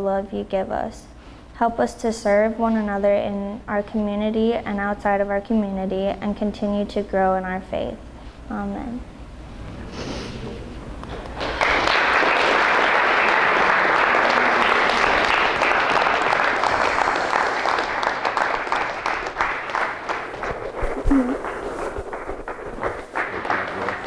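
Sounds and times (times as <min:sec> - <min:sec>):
audience applauding: 0:11.1 - 0:24.0.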